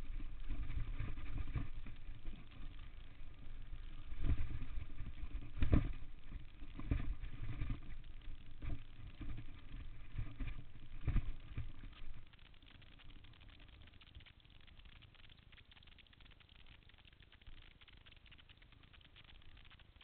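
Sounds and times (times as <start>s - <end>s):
wind rumble on microphone: 0.0s - 11.8s.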